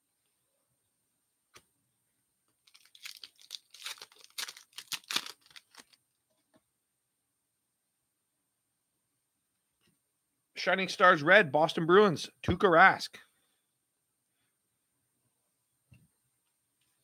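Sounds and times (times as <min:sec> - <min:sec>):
foil wrapper crinkling: 0:02.6 - 0:06.0.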